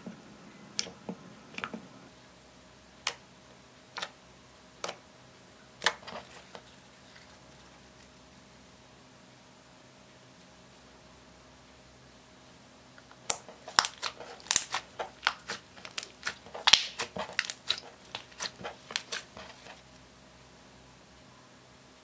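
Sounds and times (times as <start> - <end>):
slime sticky clicks and pops: 13.3 - 17.8.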